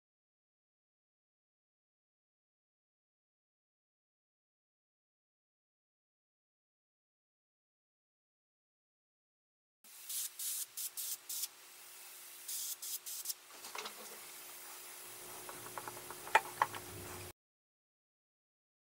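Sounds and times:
airbrush hissing bursts: 9.9s - 13.4s
faint steady hum: 13.6s - 17.3s.

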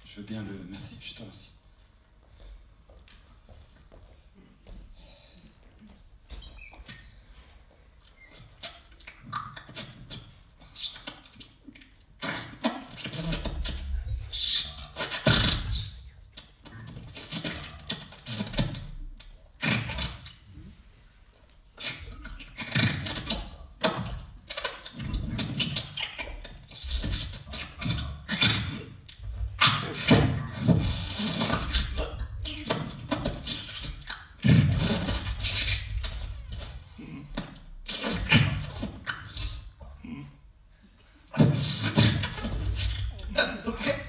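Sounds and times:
man making mouth sounds: 8.4s - 20.8s, 21.7s - 40.5s.

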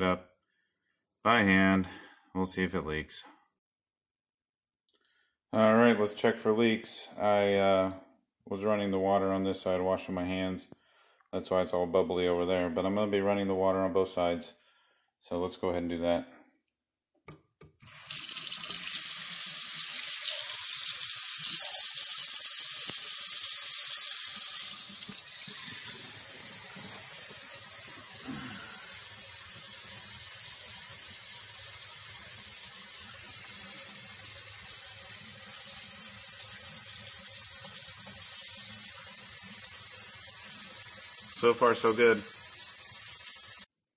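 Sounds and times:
water running into a steel sink: 17.8s - 43.7s.

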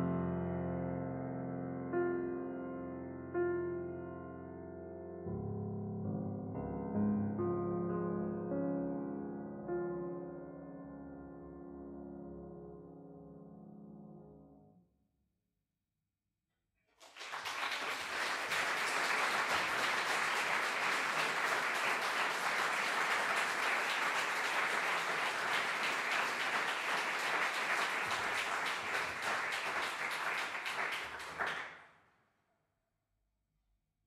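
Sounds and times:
audience applauding: 16.9s - 31.8s.

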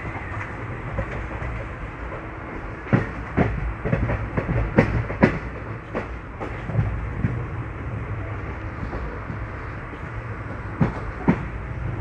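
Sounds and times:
train wheels rumbling: 0.0s - 12.0s.

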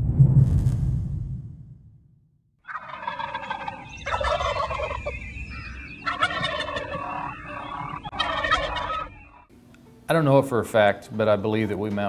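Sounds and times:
turkey gobbling: 2.6s - 9.5s.

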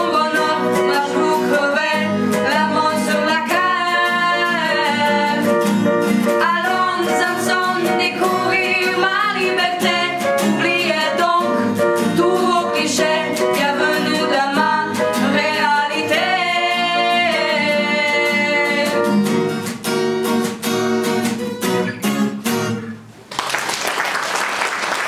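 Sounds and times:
women singing in duet: 0.0s - 5.6s, 6.3s - 19.2s
strummed guitar: 0.0s - 23.2s
applause: 23.3s - 25.0s.

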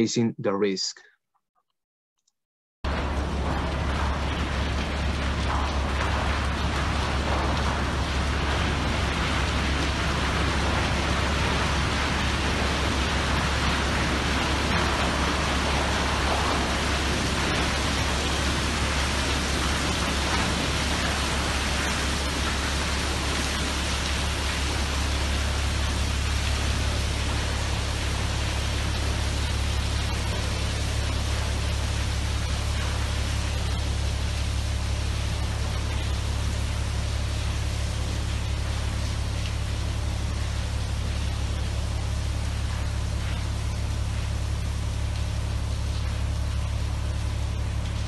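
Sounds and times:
low hum: 2.8s - 48.0s.

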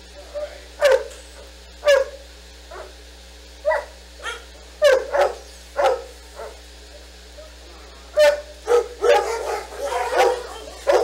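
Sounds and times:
dog barking: 0.8s - 1.1s, 1.8s - 3.0s, 3.6s - 6.6s, 8.2s - 11.0s.

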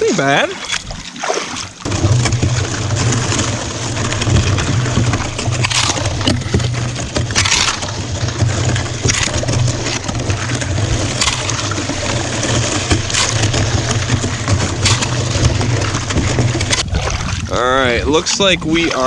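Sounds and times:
kayak paddle splashes: 0.0s - 19.0s
water rushing: 0.0s - 19.0s.

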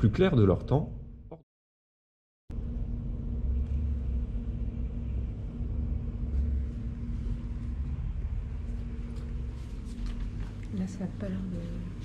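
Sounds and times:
continuous hum: 2.5s - 12.0s
steady low rumble: 2.5s - 12.0s.

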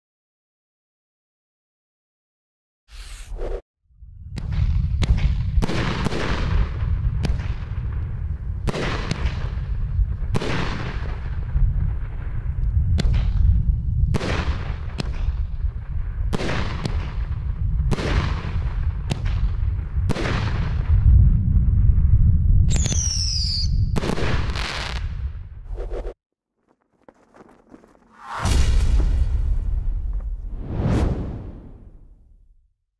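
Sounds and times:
firework whistles falling in pitch: 22.7s - 24.0s.

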